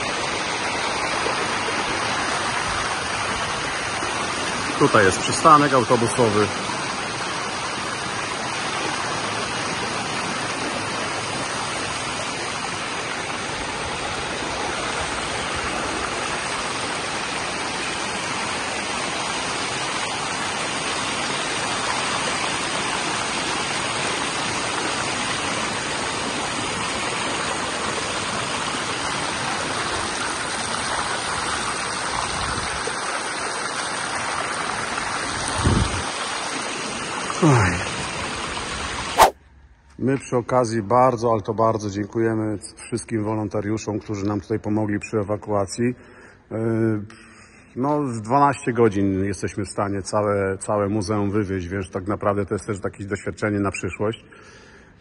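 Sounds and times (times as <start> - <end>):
floodwater rushing: 0.0 - 39.3.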